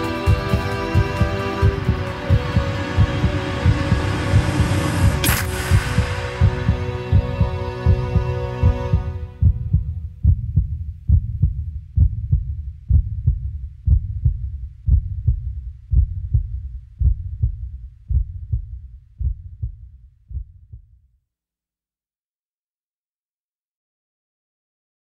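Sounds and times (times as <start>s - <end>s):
low hum: 0.0s - 20.9s
heartbeat thumps: 0.0s - 21.0s.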